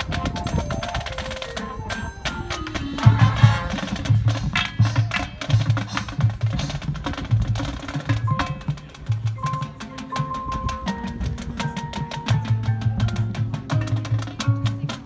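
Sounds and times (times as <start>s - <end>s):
low drum strokes: 0.0s - 15.0s.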